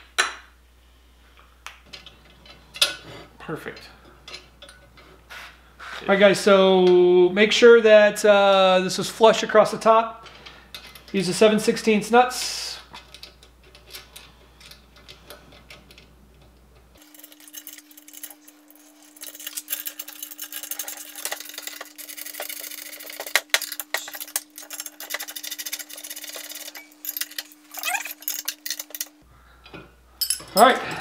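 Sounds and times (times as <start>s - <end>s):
metal clicks of wrenches and bolts: 1.9s - 3.0s, 3.6s - 5.0s.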